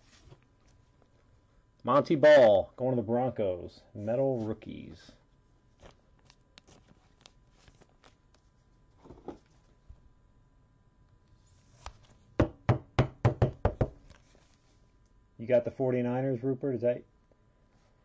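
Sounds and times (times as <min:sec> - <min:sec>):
plastic sleeve crinkling: 0:05.8 - 0:08.6.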